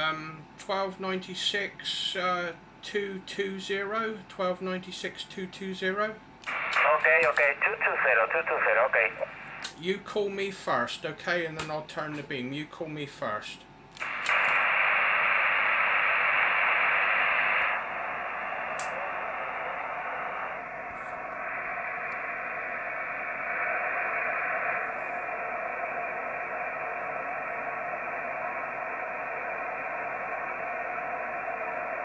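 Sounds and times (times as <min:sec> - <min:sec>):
radio receiver hiss: 0:06.4 - 0:09.8, 0:14.0 - 0:32.0
single click: 0:14.0 - 0:14.6.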